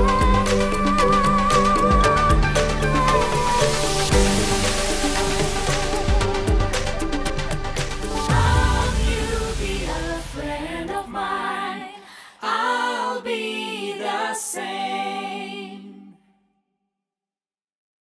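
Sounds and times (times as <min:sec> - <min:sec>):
unaccompanied singing: 0:00.0 - 0:04.6, 0:08.2 - 0:16.2.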